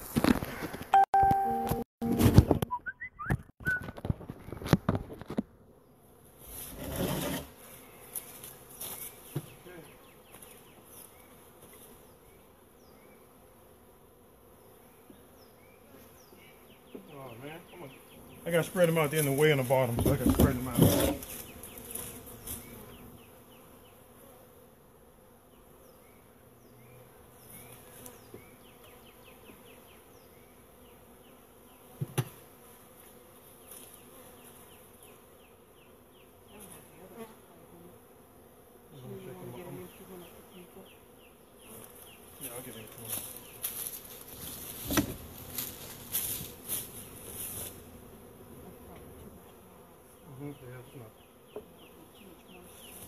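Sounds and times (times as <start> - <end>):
honeybees buzzing: 3.8 - 53.0.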